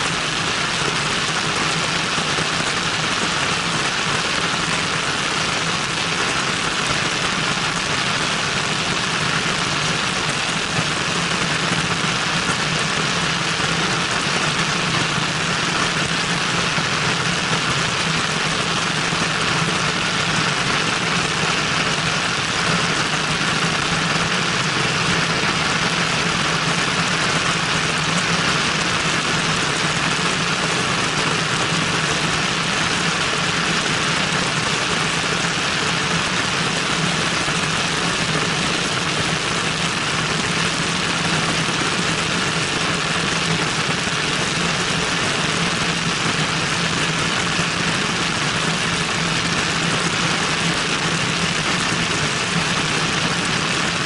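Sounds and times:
airplane engine and propeller drone: 0.0 - 54.0.

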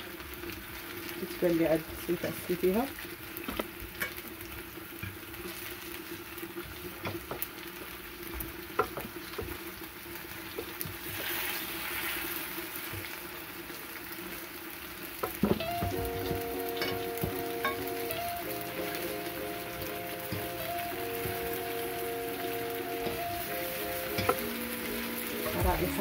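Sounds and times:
fruit sizzling in frying pan: 0.0 - 26.0
background music: 15.5 - 26.0.

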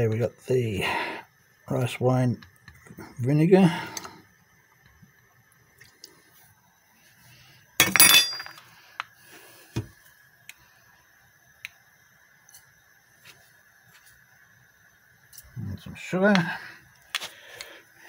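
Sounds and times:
faint steady hum: 0.0 - 18.0
kitchen utensils clinking: 7.8 - 8.6.

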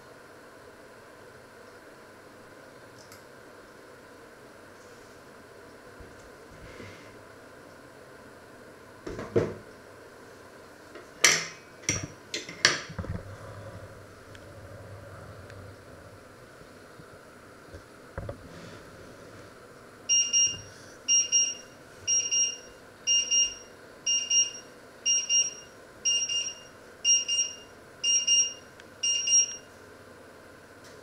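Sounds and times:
kitchen timer beeping: 20.1 - 29.7.

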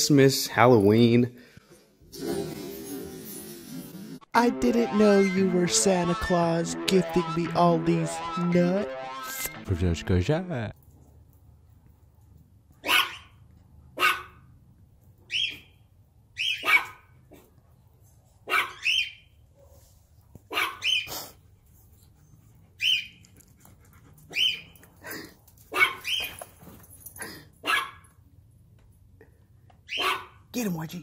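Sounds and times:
dog barking: 12.8 - 13.3, 14.0 - 14.4, 16.5 - 17.5, 18.5 - 18.9, 20.5 - 21.1, 25.7 - 26.2, 27.6 - 28.1, 29.9 - 30.5.

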